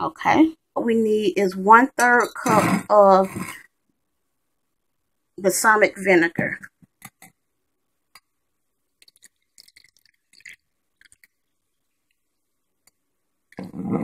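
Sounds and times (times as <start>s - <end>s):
liquid pouring and splashing: 8.9s - 12.6s.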